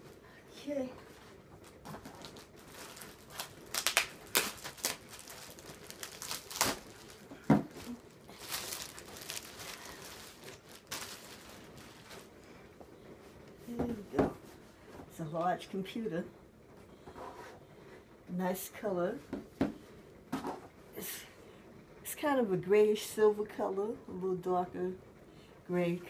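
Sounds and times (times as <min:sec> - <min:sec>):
plastic bag crinkling: 0:01.1 - 0:12.6.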